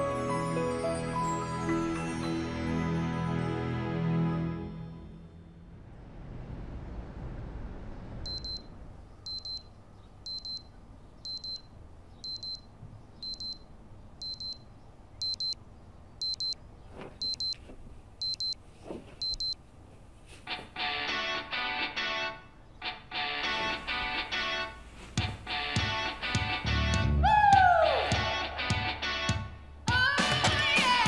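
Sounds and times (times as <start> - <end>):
alarm clock beeping: 8.3 - 8.6, 9.3 - 9.6, 10.3 - 10.6, 11.3 - 11.6, 12.2 - 12.6, 13.2 - 13.6, 14.2 - 14.6, 15.2 - 15.6, 16.2 - 16.6, 17.2 - 17.6, 18.2 - 18.6, 19.2 - 19.6
guitar music: 20.8 - 27.2.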